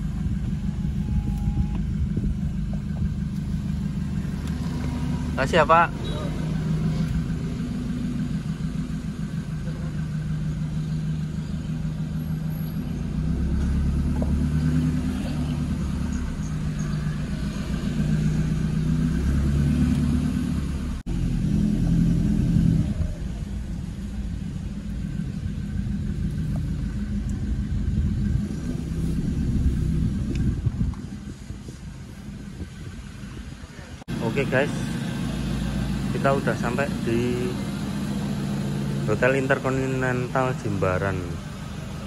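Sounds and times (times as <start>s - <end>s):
car engine: 0.0s - 42.0s
road rumble: 0.0s - 42.0s.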